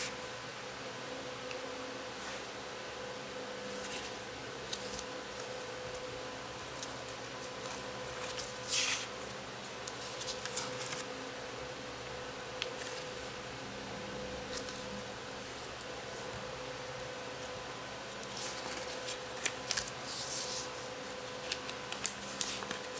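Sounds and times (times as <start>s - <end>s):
steady hum: 0.0s - 22.9s
paper rustling and crinkling: 3.7s - 6.0s, 6.6s - 9.1s, 9.8s - 11.1s, 12.6s - 13.3s, 18.1s - 22.9s.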